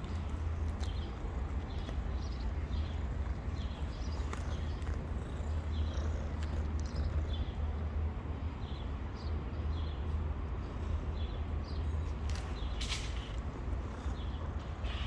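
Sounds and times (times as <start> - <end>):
small bird chirping: 0.8 - 7.7.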